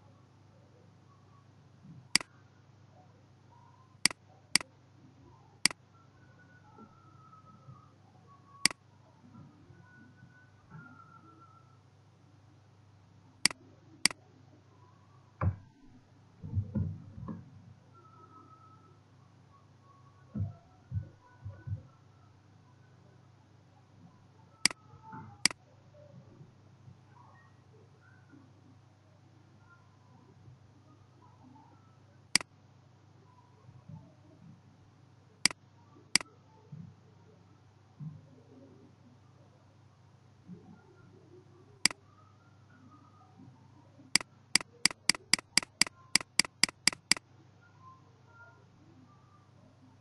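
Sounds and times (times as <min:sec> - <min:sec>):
faint low hum: 0:00.0 - 0:50.0
computer mouse clicks: 0:44.2 - 0:47.2
keyboard keystrokes: 0:44.6 - 0:47.2.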